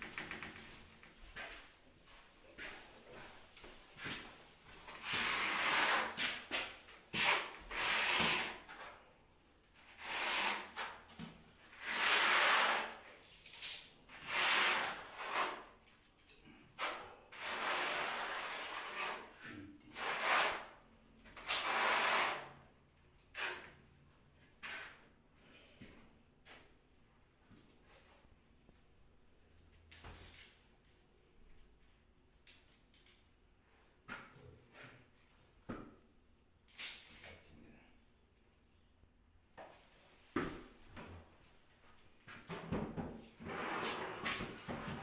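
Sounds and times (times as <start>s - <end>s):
trowel scraping adhesive: 5.1s - 6.4s, 7.2s - 8.8s, 10.0s - 11.0s, 11.7s - 13.0s, 14.1s - 15.7s, 16.8s - 20.8s, 21.4s - 22.5s.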